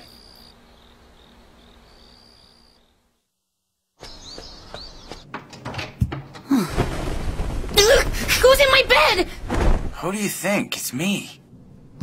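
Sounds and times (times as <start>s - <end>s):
crickets chirping: 0.0s - 3.3s
birdsong: 4.0s - 5.3s
door opening clicks and knocks: 5.2s - 6.5s.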